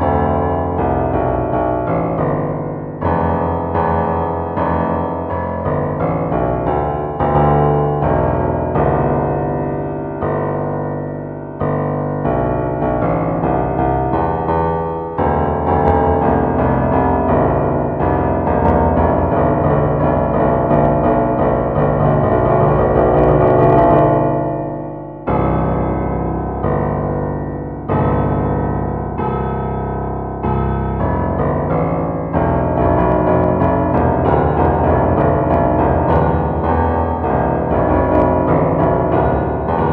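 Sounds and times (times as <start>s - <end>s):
piano notes and chords: 0.0s - 39.9s.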